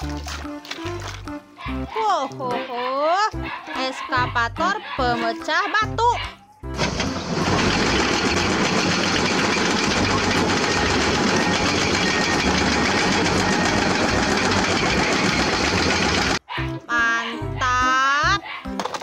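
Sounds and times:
diesel engines running: 0:06.8 - 0:16.4
hydraulic rock breaker hammering: 0:06.8 - 0:16.4.

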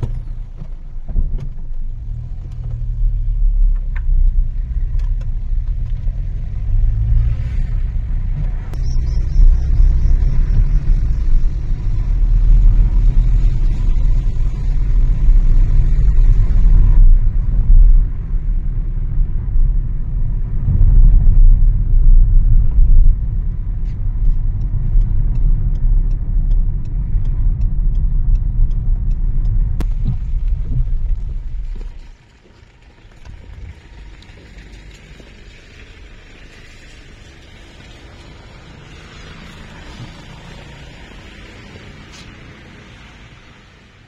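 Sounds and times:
car driving low rumble: 0:00.0 - 0:44.0
faint regular ticking: 0:22.8 - 0:31.8.

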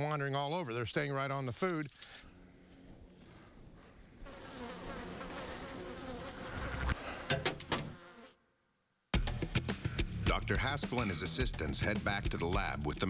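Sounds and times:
flies buzzing: 0:02.6 - 0:08.5.

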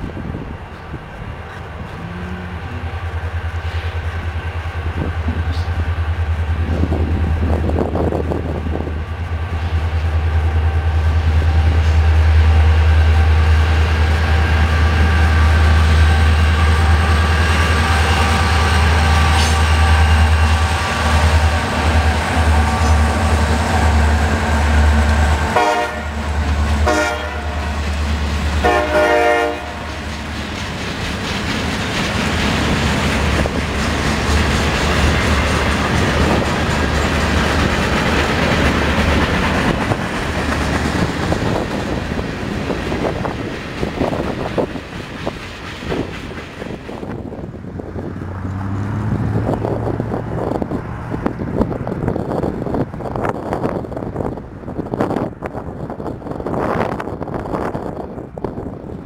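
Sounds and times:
locomotive engines humming: 0:00.0 - 0:59.0
train wheel noise: 0:00.0 - 0:59.0
rail-joint clicks: 0:00.6 - 0:02.0, 0:02.6 - 0:09.3, 0:17.8 - 0:24.0, 0:29.9 - 0:47.4
train horn: 0:01.9 - 0:03.2, 0:24.8 - 0:27.8, 0:28.6 - 0:30.0.

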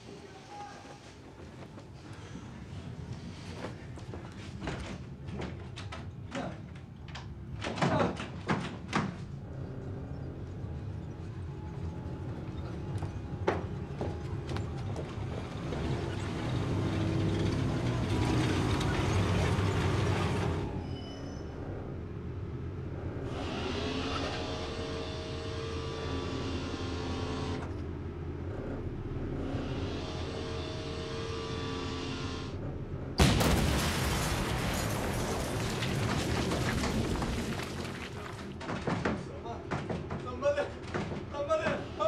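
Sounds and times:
tracks clanking and squealing: 0:04.6 - 0:22.1
tank engine running: 0:09.2 - 0:38.6
loud gun blast: 0:33.2 - 0:37.4.

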